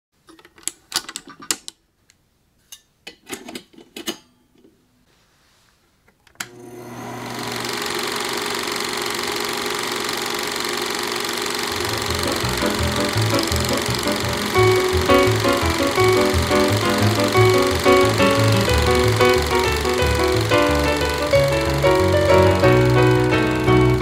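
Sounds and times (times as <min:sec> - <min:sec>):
film projector whirring: 0:06.4 - 0:24.0.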